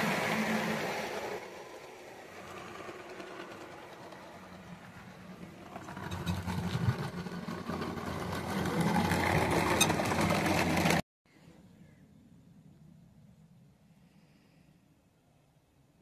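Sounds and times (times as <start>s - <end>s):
model train wheels clattering: 0.0s - 11.0s.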